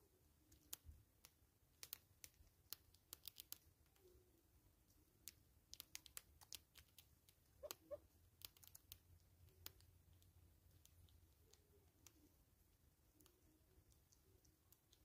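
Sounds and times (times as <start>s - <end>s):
squirrel nibbling clicks: 0.4s - 15.0s
squirrel call: 7.6s - 8.0s.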